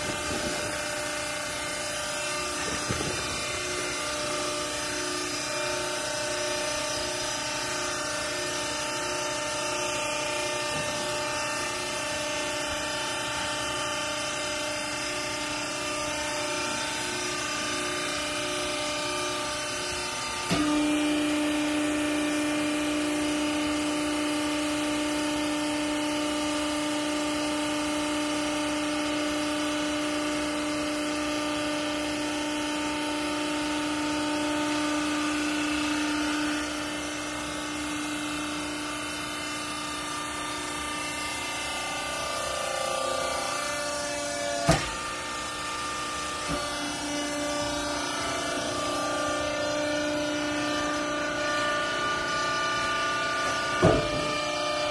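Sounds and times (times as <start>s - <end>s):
hydraulic pump motor humming: 0.0s - 54.9s.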